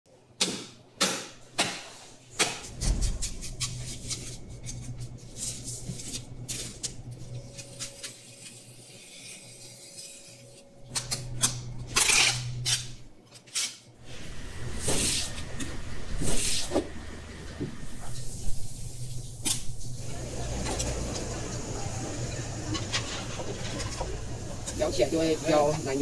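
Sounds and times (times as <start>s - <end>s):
knife scraping and slicing fish: 2.6s - 13.8s
low hum: 2.7s - 13.2s, 14.0s - 25.9s.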